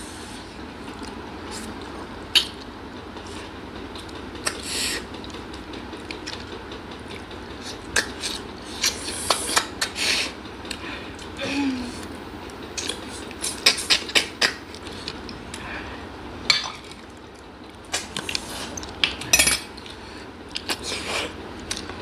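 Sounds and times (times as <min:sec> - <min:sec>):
spoons clinking on glass bowls: 0:19.3 - 0:19.7.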